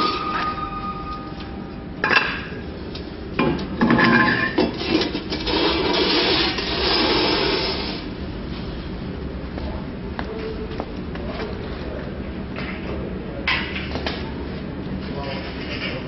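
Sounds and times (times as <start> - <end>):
scraping and rubbing: 4.8 - 8.0.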